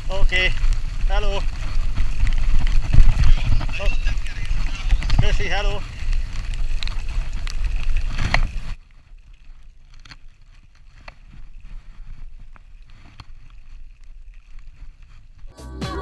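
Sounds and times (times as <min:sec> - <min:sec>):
wind buffeting microphone: 0:00.0 - 0:08.8
bicycle tyre road noise: 0:00.0 - 0:15.6.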